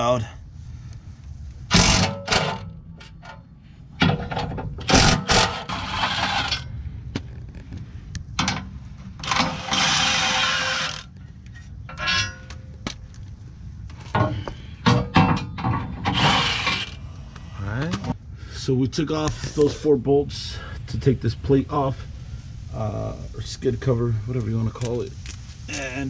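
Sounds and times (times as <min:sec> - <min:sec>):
impact wrench hammering: 0:01.7 - 0:02.7, 0:04.8 - 0:06.5.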